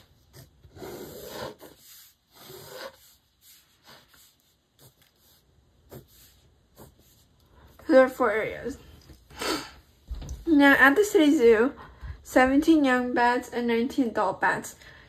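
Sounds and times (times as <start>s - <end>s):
pencil scratching on paper: 0.0s - 8.0s.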